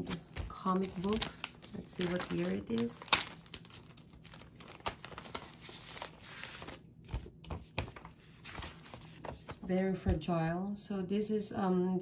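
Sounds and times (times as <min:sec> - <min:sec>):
plastic sleeve crinkling: 0:00.0 - 0:09.5
paper rustling: 0:00.0 - 0:09.8.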